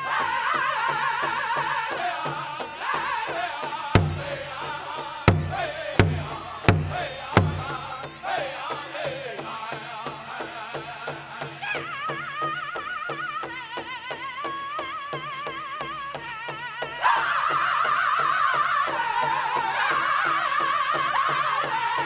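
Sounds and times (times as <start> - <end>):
fast drumbeat on big drum: 1.4 - 13.6
loud accented drum strikes: 2.2 - 11.6.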